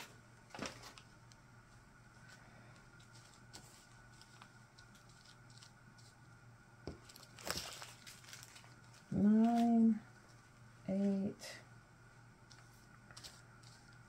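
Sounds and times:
plastic bags rustling and crinkling: 0:00.0 - 0:01.2, 0:02.2 - 0:06.3, 0:06.9 - 0:10.6, 0:12.4 - 0:14.0.

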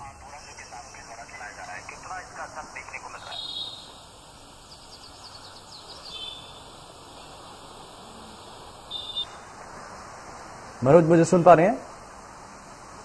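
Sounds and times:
faint steady hiss: 0:00.0 - 0:13.0
faint high chirps: 0:02.8 - 0:09.5.

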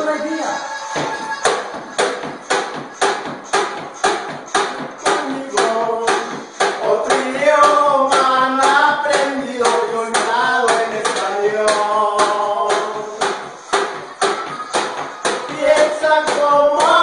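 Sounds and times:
accordion melody: 0:00.0 - 0:02.0
sharp percussion beat: 0:00.0 - 0:17.0.

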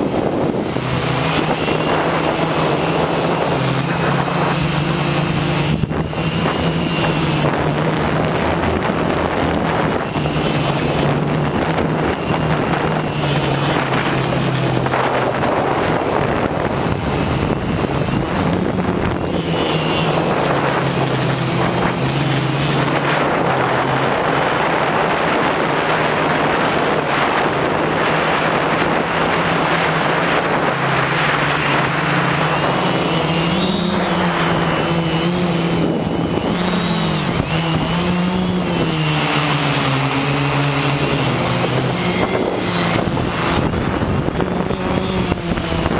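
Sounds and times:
drone propellers whirring: 0:00.0 - 0:45.9.

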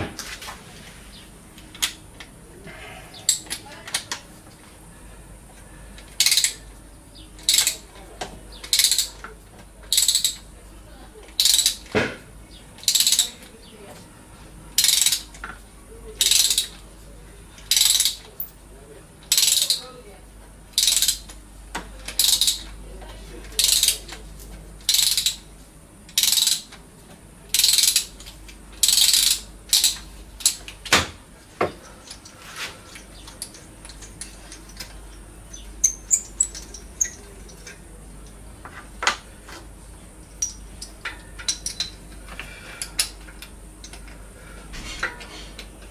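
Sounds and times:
sharp metal clicks: 0:01.6 - 0:02.3, 0:06.0 - 0:06.6, 0:07.4 - 0:07.9, 0:08.6 - 0:10.5, 0:11.3 - 0:12.0, 0:12.8 - 0:13.6, 0:14.8 - 0:15.6, 0:16.2 - 0:16.8, 0:17.6 - 0:18.5, 0:20.7 - 0:21.4, 0:22.0 - 0:22.8, 0:24.8 - 0:25.5, 0:26.1 - 0:26.8, 0:27.5 - 0:31.1, 0:32.9 - 0:38.4, 0:40.3 - 0:42.2
ratchet wrench ratcheting: 0:06.2 - 0:06.6, 0:07.4 - 0:07.9, 0:08.7 - 0:09.3, 0:09.9 - 0:10.5, 0:11.4 - 0:11.9, 0:12.8 - 0:13.3, 0:14.8 - 0:15.3, 0:16.2 - 0:16.8, 0:17.6 - 0:18.5, 0:19.2 - 0:19.8, 0:20.7 - 0:21.4, 0:22.1 - 0:22.7, 0:23.6 - 0:24.1, 0:24.8 - 0:25.5, 0:26.1 - 0:26.8, 0:27.5 - 0:30.7.

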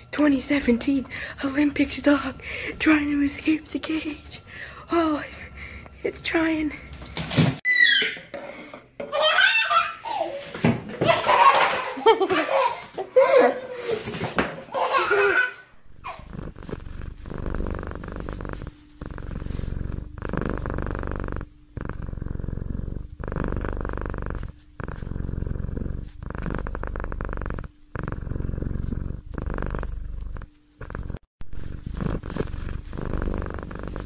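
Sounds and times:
cat purring: 0:15.8 - 0:34.0.

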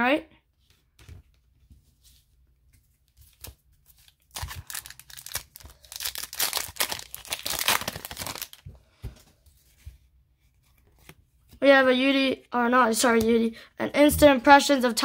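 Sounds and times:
wrapper crinkling and tearing: 0:03.3 - 0:08.7.

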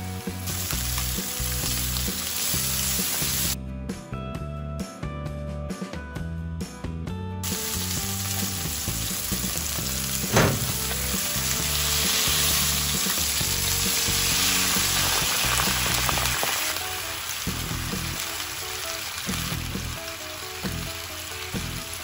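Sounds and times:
chicken sizzling in frying pan: 0:00.0 - 0:03.6, 0:07.4 - 0:22.0
background music: 0:00.0 - 0:22.0
sharp hit: 0:10.2 - 0:11.1.

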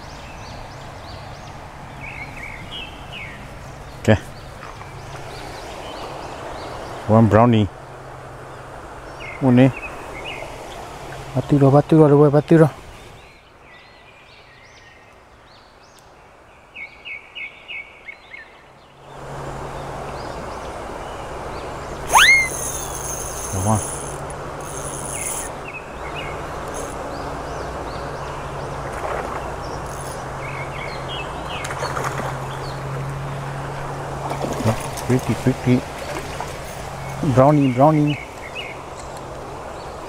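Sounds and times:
stream water flowing: 0:00.0 - 0:11.4, 0:18.9 - 0:40.0
sharp rising call: 0:22.0 - 0:25.5
small bird chirps: 0:22.0 - 0:27.0.

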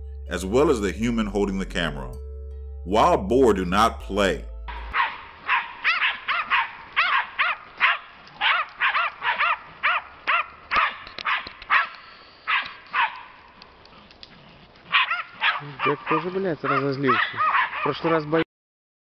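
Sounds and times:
small dogs barking rapidly: 0:04.9 - 0:11.9, 0:12.5 - 0:13.4, 0:14.8 - 0:18.4.

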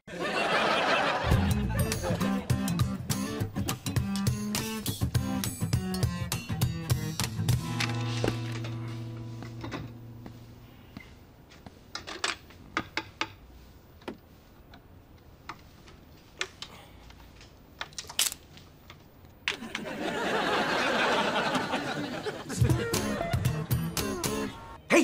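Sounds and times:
studio audience laughing: 0:00.1 - 0:02.8, 0:19.5 - 0:24.0
guitar music: 0:01.3 - 0:11.2, 0:22.6 - 0:24.8.

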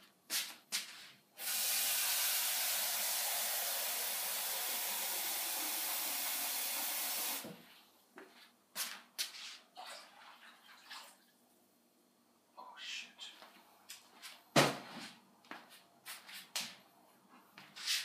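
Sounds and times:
water running from a tap: 0:01.4 - 0:07.5.

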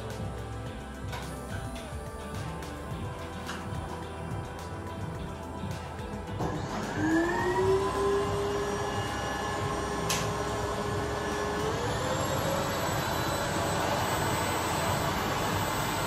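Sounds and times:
vacuum cleaner motor whining: 0:06.4 - 0:16.0.

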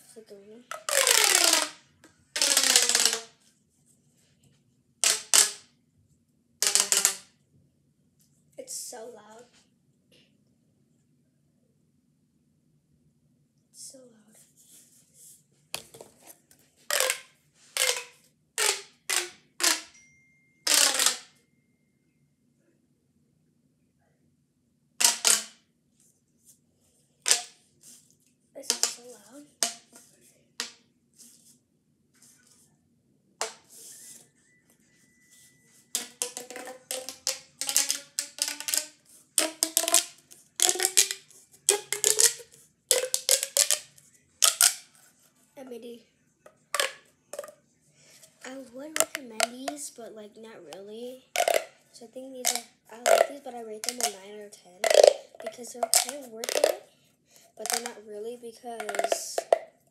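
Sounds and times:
pop tube toy popping clicks: 0:00.7 - 0:01.8, 0:02.4 - 0:03.3, 0:05.0 - 0:05.6, 0:06.6 - 0:07.3, 0:16.9 - 0:19.9, 0:20.7 - 0:21.2, 0:25.0 - 0:25.6, 0:36.0 - 0:44.8, 0:51.4 - 0:51.7, 0:52.4 - 0:54.2, 0:54.8 - 0:56.8, 0:57.6 - 0:58.0, 0:58.8 - 0:59.7.

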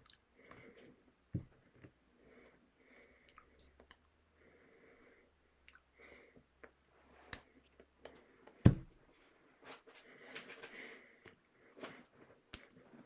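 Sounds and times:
close breathing: 0:02.1 - 0:06.6, 0:07.4 - 0:13.0
heavy thump: 0:08.7 - 0:08.9.

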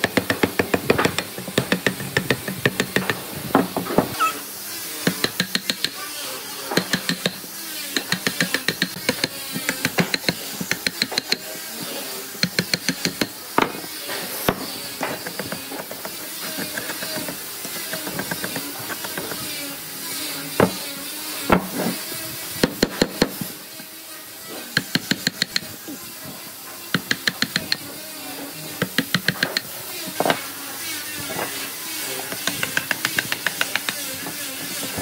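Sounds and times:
wooden mallet striking steel chisel: 0:00.0 - 0:03.2, 0:05.0 - 0:06.0, 0:06.8 - 0:11.4, 0:12.4 - 0:13.8, 0:24.8 - 0:25.7, 0:26.9 - 0:27.9, 0:28.8 - 0:30.3, 0:32.3 - 0:34.0.

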